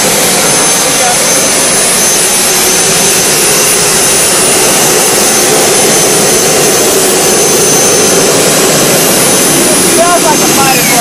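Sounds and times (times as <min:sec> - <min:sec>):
gas turbine engine running: 0:00.0 - 0:11.0.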